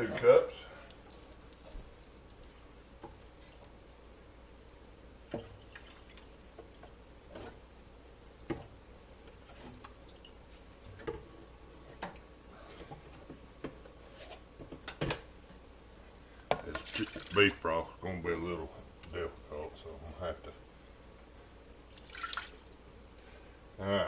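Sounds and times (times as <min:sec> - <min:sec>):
broth dripping and trickling: 0:00.7 - 0:02.7, 0:05.3 - 0:06.3, 0:09.8 - 0:10.6, 0:16.7 - 0:17.6, 0:21.9 - 0:22.9.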